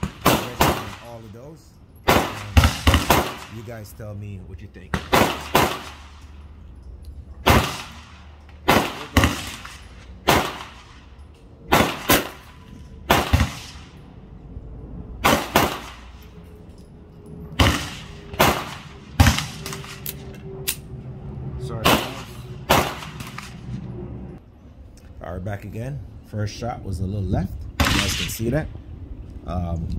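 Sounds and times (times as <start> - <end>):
gunshots: 0.0 - 1.4, 2.0 - 4.0, 4.8 - 6.3, 7.4 - 11.1, 11.7 - 14.0, 15.2 - 16.2, 17.6 - 20.2, 21.8 - 23.8, 27.8 - 28.4.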